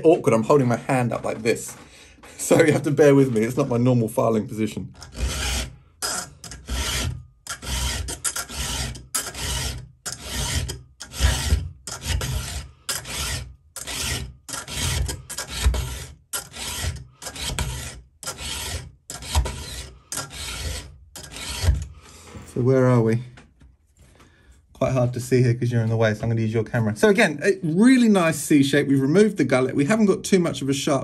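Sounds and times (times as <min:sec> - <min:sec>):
file rasping on chainsaw chain: 0:05.0 - 0:21.9.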